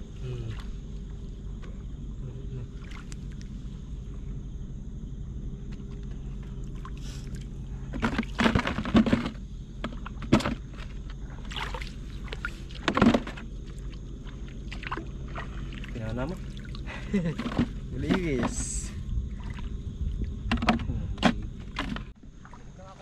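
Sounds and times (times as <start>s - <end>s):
steady low hum: 0.0s - 23.0s
seawater splashing: 2.7s - 3.6s, 11.2s - 20.2s, 22.2s - 23.0s.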